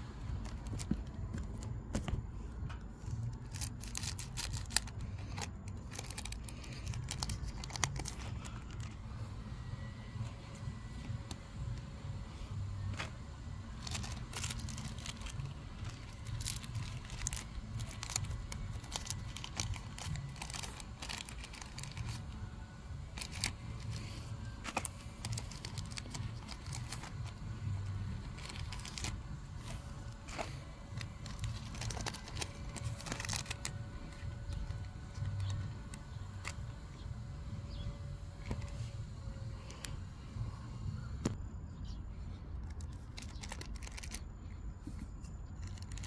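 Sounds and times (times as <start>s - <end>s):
foil wrappers crinkling and tearing: 0.2s - 1.7s, 3.1s - 11.5s, 12.8s - 36.7s, 42.6s - 44.3s, 45.4s - 46.0s.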